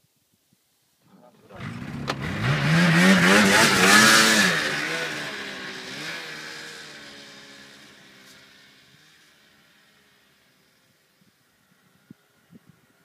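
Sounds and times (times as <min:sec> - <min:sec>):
snowmobile engine revving: 0:01.2 - 0:08.6.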